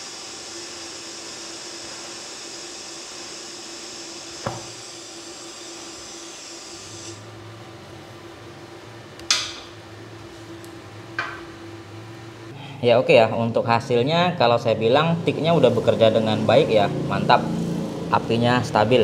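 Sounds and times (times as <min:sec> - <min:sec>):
welding arc hissing: 0:00.0 - 0:07.3.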